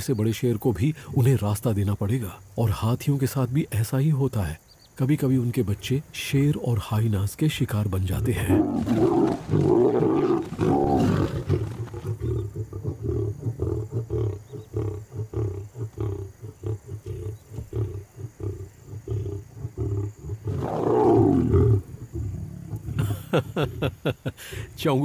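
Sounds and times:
lion growling: 0:08.1 - 0:23.9
lion snarling: 0:08.1 - 0:23.9.

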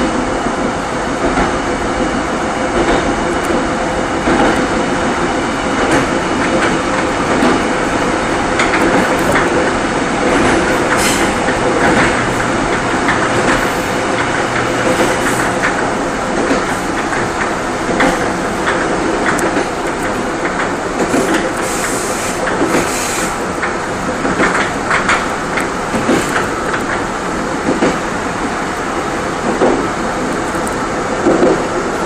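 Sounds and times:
train wheels rumbling on rail: 0:00.0 - 0:32.0.

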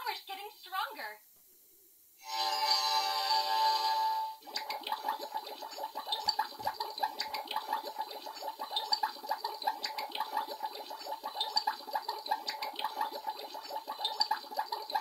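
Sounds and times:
water bubbling in cup: 0:04.4 - 0:15.0.

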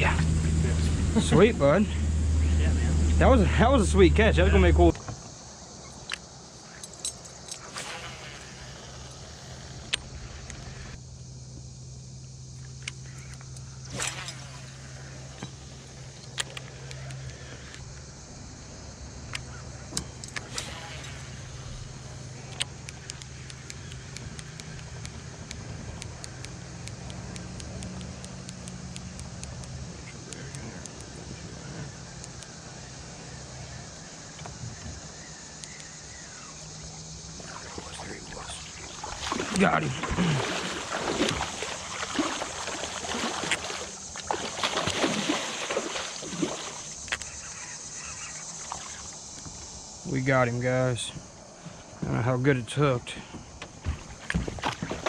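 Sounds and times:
boat motor humming: 0:00.0 - 0:50.1
water sloshing: 0:36.8 - 0:47.2, 0:48.3 - 0:49.2
fish thrashing and splashing: 0:37.4 - 0:47.0.

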